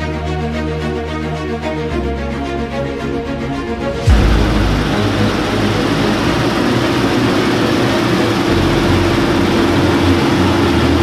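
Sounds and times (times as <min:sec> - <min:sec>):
combine harvester droning: 0:02.4 - 0:11.0.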